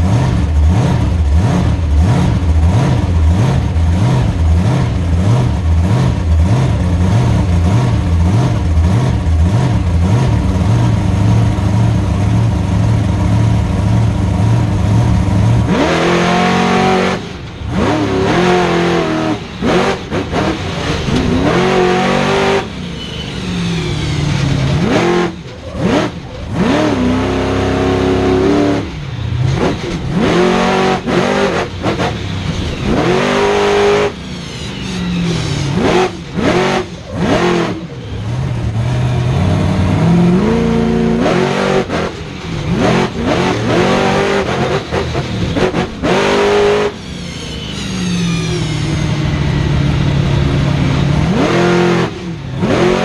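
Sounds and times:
truck engine revving hard: 0.0s - 53.0s.

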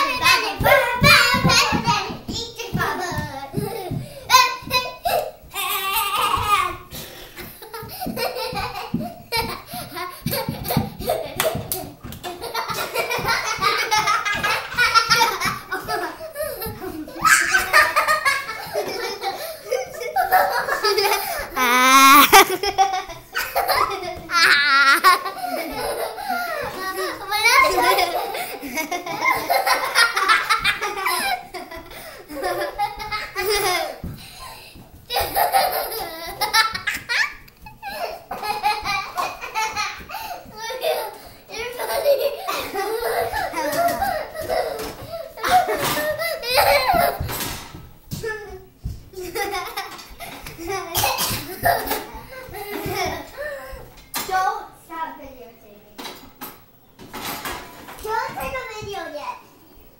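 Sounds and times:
feet thudding on tiled floor: 0.2s - 17.4s, 29.0s - 40.8s
girls laughing: 2.7s - 47.4s, 49.2s - 53.9s.

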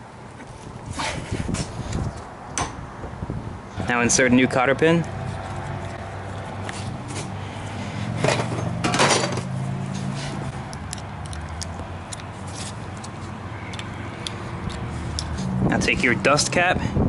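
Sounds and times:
metal tools clicking and scraping: 8.2s - 15.5s.

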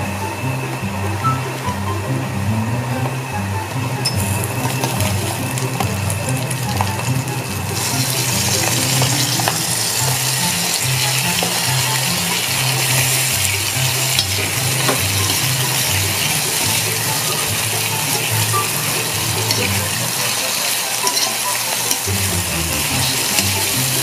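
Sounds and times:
shrimp sizzling in butter: 4.0s - 24.0s
metal spoon clicking on pan: 21.0s - 22.1s.

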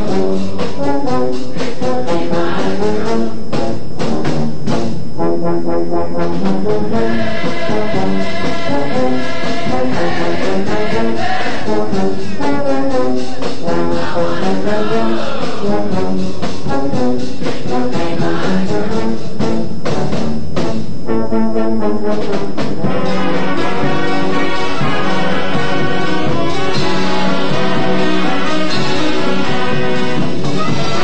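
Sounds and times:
brass marching band playing: 0.0s - 31.0s
sharp percussion hits: 22.8s - 31.0s.

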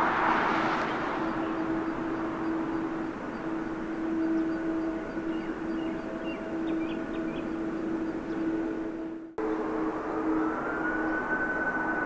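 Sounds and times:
jet engine roar: 0.0s - 5.7s
steady humming tone: 0.0s - 12.0s.

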